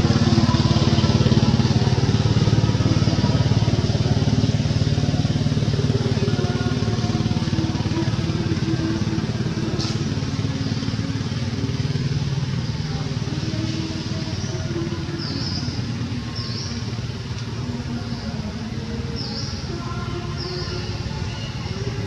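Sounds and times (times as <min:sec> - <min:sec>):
small engine running: 0:00.0 - 0:22.0.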